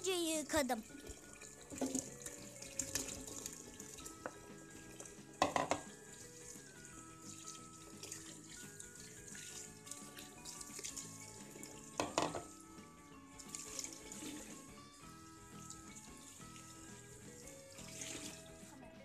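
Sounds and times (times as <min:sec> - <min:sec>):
soft background music: 0:00.0 - 0:19.0
tap running into bowl of water: 0:01.7 - 0:03.6, 0:05.0 - 0:06.0, 0:12.0 - 0:12.5.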